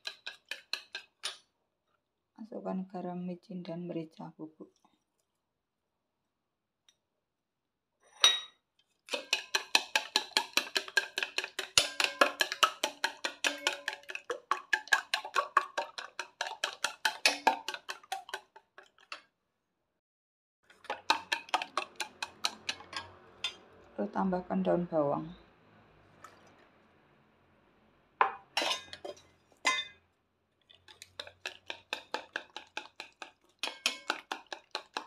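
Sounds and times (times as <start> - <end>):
chopsticks beating eggs in bowl: 0.0 - 1.4, 9.1 - 19.2, 20.7 - 23.6, 30.7 - 35.0.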